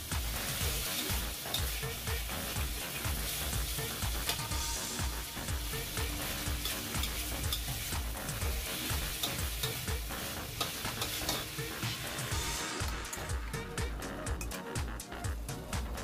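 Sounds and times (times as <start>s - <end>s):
meat sizzling in oil: 0.0s - 16.0s
metal spatula scraping wok: 0.3s - 12.6s.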